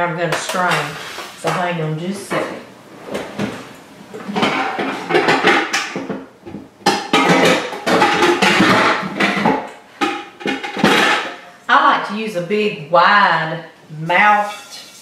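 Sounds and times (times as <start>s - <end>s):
metal pots and pans clanking: 4.2s - 11.5s, 14.3s - 15.0s.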